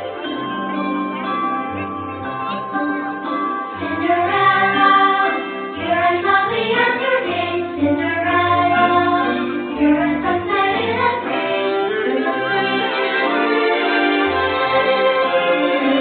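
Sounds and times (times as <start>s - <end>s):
voices singing: 3.9s - 16.0s.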